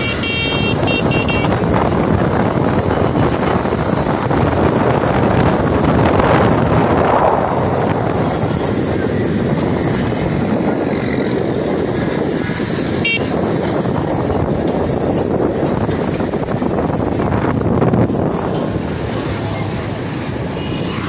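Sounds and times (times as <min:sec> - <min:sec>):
motorcycle running: 0:00.0 - 0:21.0
wind on microphone: 0:00.0 - 0:21.0.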